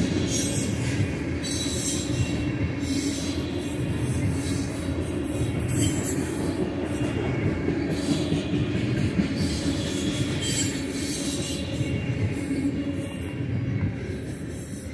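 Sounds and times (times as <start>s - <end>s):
steel wheels rumbling on rails: 0.0s - 14.9s
high wheel squeal: 9.4s - 11.9s.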